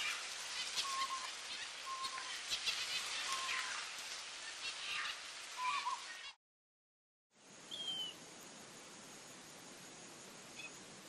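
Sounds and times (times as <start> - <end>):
steady background hiss: 0.0 - 6.4, 7.4 - 11.0.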